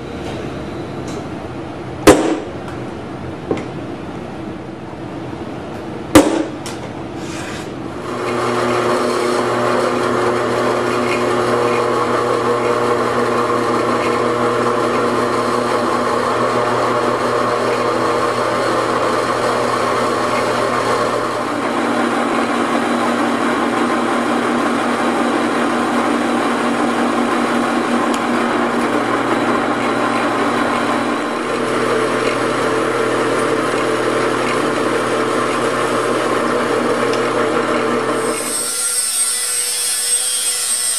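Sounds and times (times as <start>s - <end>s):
hammer striking punch on metal: 2.0s - 2.6s, 6.1s - 6.8s
drill press drilling metal: 8.0s - 40.9s.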